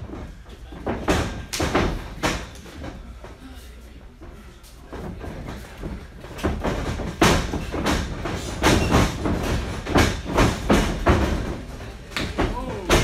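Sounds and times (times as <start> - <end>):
heavy thuds in wrestling ring: 6.4 - 11.6.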